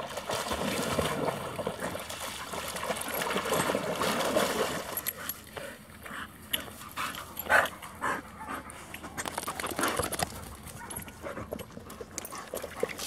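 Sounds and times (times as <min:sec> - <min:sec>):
dogs splashing through water: 0:00.0 - 0:13.0.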